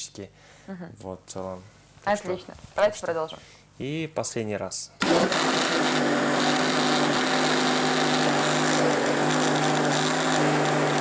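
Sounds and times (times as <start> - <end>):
blender motor running: 5.0 - 11.0.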